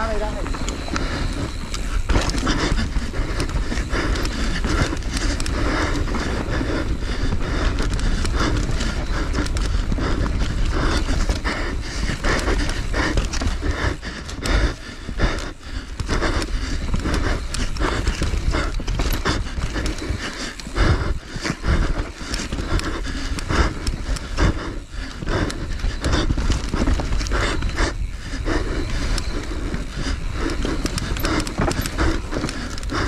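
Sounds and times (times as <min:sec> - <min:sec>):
constant low rumble: 0:00.0 - 0:33.0
person breathing hard: 0:00.0 - 0:33.0.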